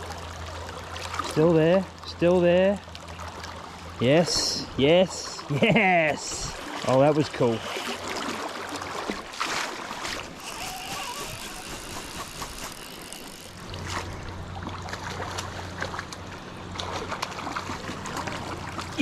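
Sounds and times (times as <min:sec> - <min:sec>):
low steady hum: 0:00.0 - 0:19.0
river current rushing: 0:06.2 - 0:15.8
fish splashing: 0:06.3 - 0:19.0.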